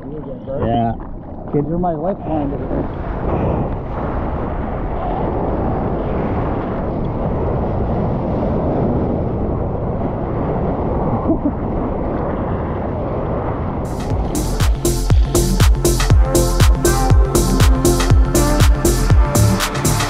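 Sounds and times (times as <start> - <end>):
wind against camera: 0.0 - 14.4
ocean water rushing: 2.6 - 20.0.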